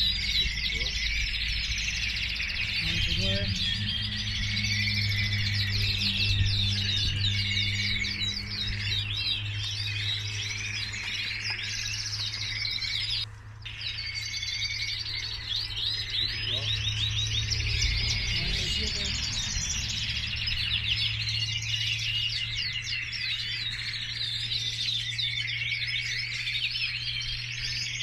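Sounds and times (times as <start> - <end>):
canaries singing: 0.0 - 28.0.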